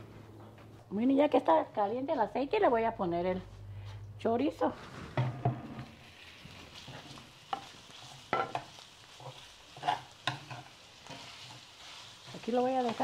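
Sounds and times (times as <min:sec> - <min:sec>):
sausage sizzling in hot oil: 0:05.0 - 0:13.0.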